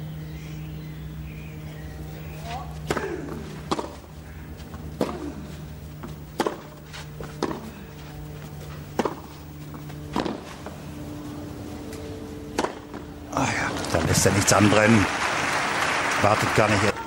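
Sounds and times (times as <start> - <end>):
racket striking tennis ball: 2.8 - 4.1, 4.9 - 5.4, 6.0 - 7.8, 8.9 - 10.7, 12.5 - 13.1
tennis ball bouncing on clay: 2.8 - 5.3, 5.9 - 7.7, 8.9 - 10.6, 12.5 - 13.0.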